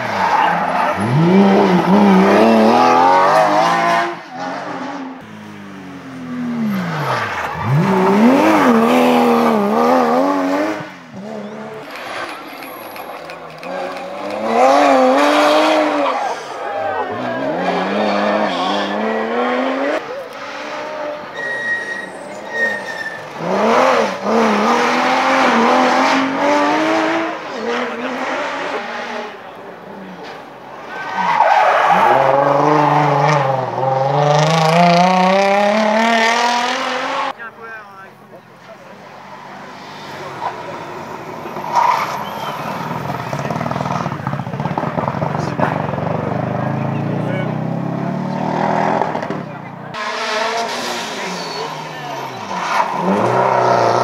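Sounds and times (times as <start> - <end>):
rally car engine revving: 0.0 - 37.6, 38.3 - 54.0
tyre squeal: 11.3 - 19.1, 20.8 - 24.1, 40.4 - 43.5, 50.0 - 54.0.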